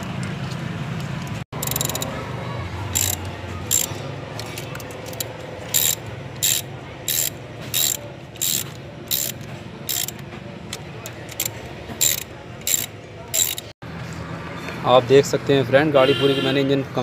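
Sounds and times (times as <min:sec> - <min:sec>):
ratchet wrench clicking: 0:01.2 - 0:02.2, 0:02.9 - 0:13.8.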